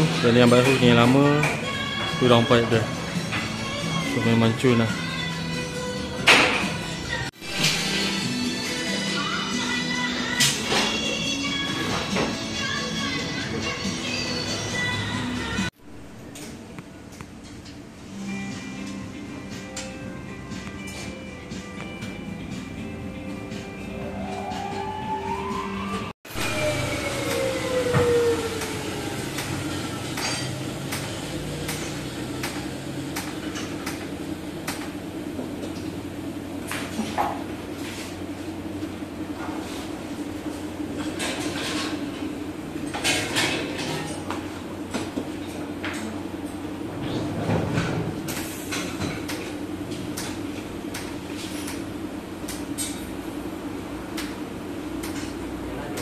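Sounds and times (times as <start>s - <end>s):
steady workshop hum: 0.0s - 56.0s
falling whine: 24.0s - 31.7s
metallic clanks and scrapes: 41.0s - 42.0s.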